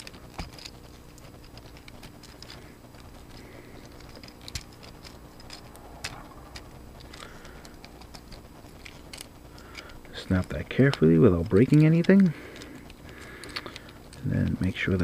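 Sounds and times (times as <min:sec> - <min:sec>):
plastic toy parts clicking: 0:03.3 - 0:15.0.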